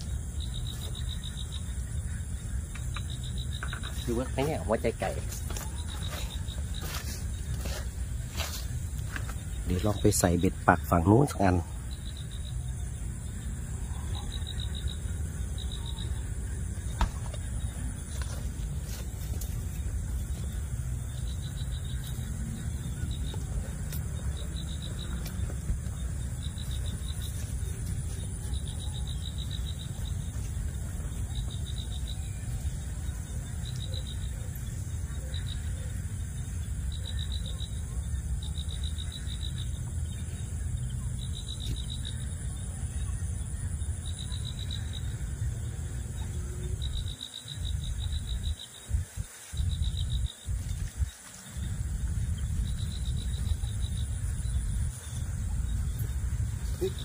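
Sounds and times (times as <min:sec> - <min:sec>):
insect chirping in rapid trills: 0:00.0 - 0:57.0
wind rumble on microphone: 0:11.7 - 0:35.4, 0:37.8 - 0:57.0
wind buffeting microphone: 0:45.0 - 0:57.0.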